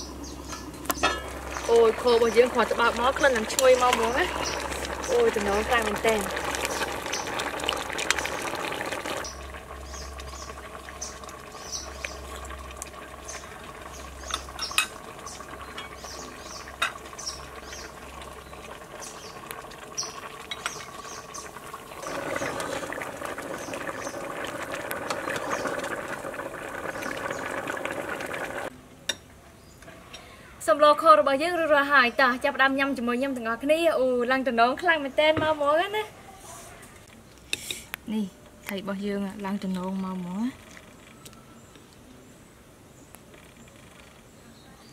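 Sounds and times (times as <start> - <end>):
sauce simmering and bubbling: 0.0 - 28.7.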